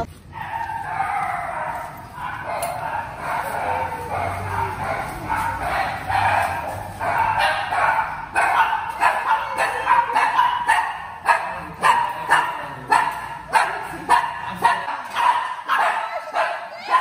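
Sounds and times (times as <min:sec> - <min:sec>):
dog barking: 0:00.3 - 0:17.0.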